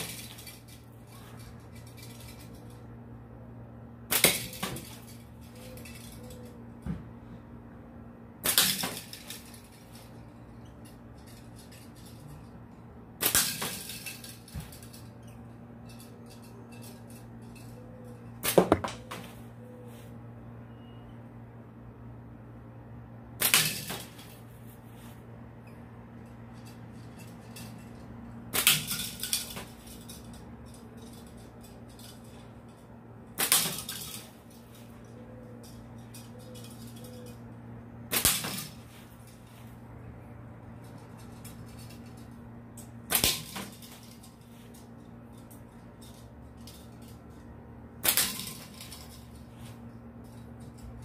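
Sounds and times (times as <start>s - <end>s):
slingshot shots cracking: 4.1s - 5.1s, 8.4s - 9.4s, 13.2s - 14.1s, 18.4s - 19.2s, 23.4s - 24.2s, 28.5s - 29.8s, 33.4s - 34.2s, 38.1s - 38.8s, 43.1s - 44.0s, 48.0s - 48.8s.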